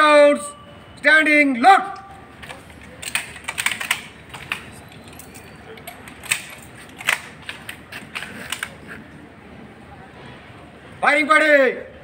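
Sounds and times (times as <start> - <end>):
rifles being loaded clicks: 1.9 - 9.0.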